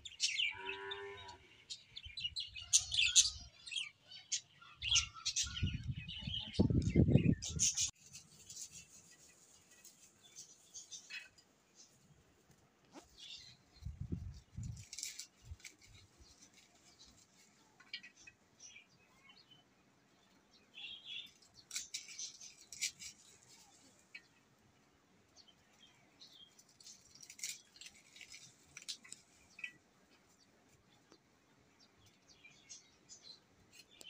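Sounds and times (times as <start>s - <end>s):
hands peeling clicks and rustles: 14.6s - 16.7s, 26.6s - 29.3s.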